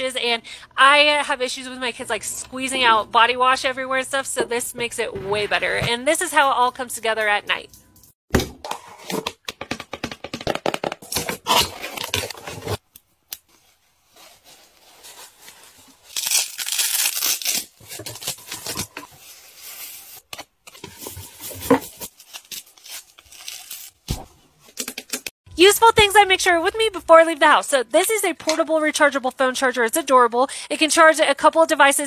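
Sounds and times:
cardboard and plastic rustling: 13.5s - 16.2s, 17.8s - 24.0s
packaging tearing: 16.0s - 20.4s, 22.0s - 24.1s.

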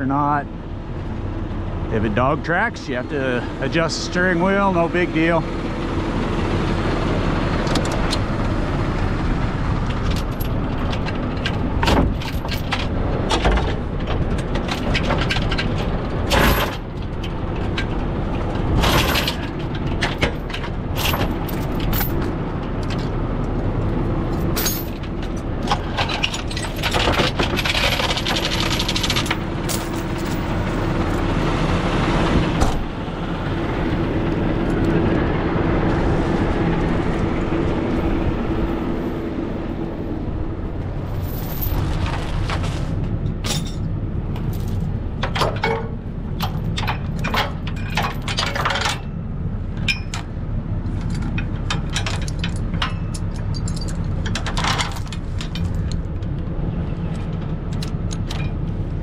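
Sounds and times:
diesel engine idling: 0.0s - 14.6s, 15.6s - 45.2s
chain rattling: 10.0s - 12.9s, 18.8s - 23.1s, 24.3s - 31.3s, 41.1s - 42.0s, 43.4s - 49.1s, 51.0s - 56.1s
metal clanks: 10.0s - 23.1s, 41.1s - 49.2s.

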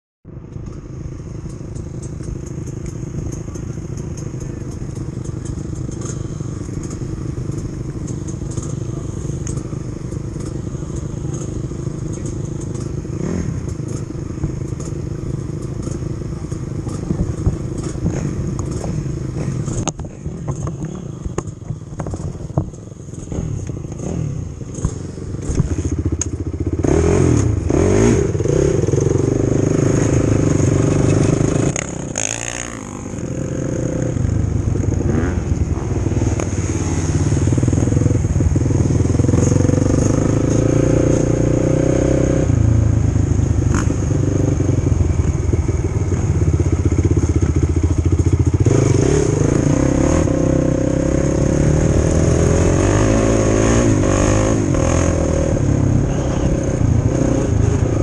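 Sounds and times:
quad engine idling and revving: 0.3s - 58.0s
tyres on gravel: 0.5s - 41.4s.

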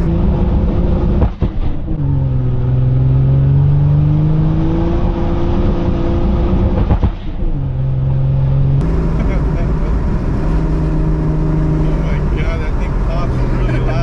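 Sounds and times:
car engine heard from cabin: 7.6s - 14.0s.

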